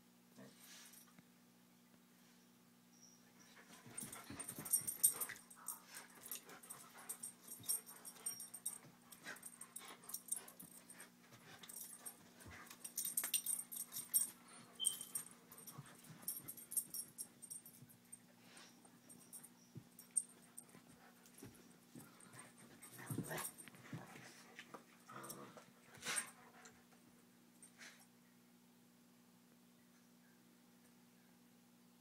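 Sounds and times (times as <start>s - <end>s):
steady low hum: 0.1s - 32.0s
scuffling clicks and rustles: 19.8s - 24.9s.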